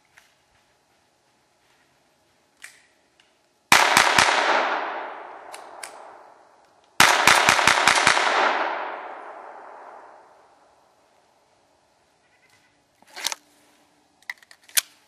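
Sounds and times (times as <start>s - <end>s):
pistol shots: 3.7s - 6.3s, 7.0s - 10.2s
gunshot echo through woods: 3.7s - 10.6s.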